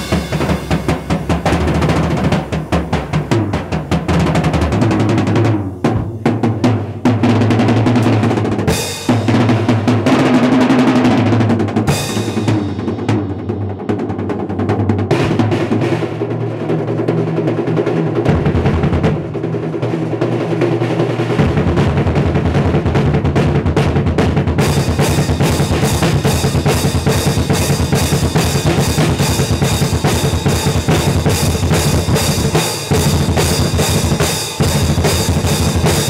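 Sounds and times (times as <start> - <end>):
cymbal crashes: 0.0 - 4.0, 7.9 - 10.1, 11.9 - 13.5, 24.6 - 36.0
bass drum thumping: 0.0 - 10.2, 21.4 - 36.0
drum solo with sticks: 0.0 - 36.0.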